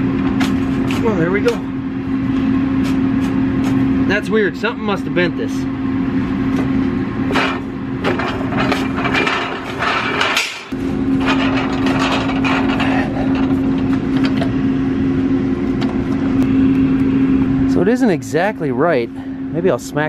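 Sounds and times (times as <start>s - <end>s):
metal clanks and rattles: 7.3s - 14.5s.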